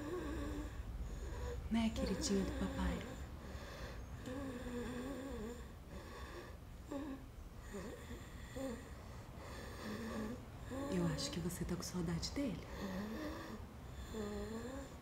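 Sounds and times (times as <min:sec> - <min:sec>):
faint room hum: 0:00.0 - 0:15.0
woman's soft wavering voice: 0:01.7 - 0:03.2.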